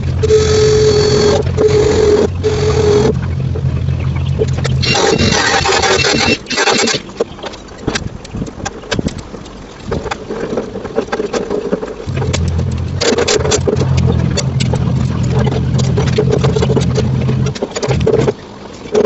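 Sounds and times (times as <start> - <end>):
steady low hum: 0.0 - 7.4, 12.0 - 18.7.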